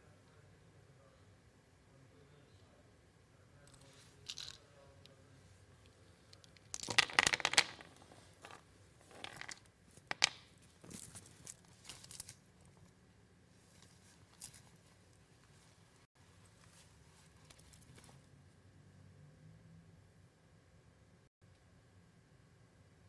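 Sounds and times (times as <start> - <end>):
clothing and blanket rustling: 13.5 - 18.2.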